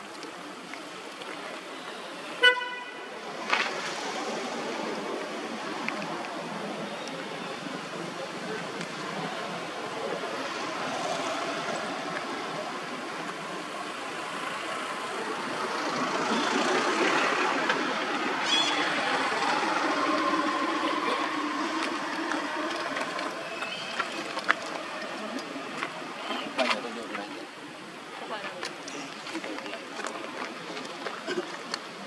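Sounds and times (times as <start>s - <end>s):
distant vehicle engine: 7.9s - 26.6s.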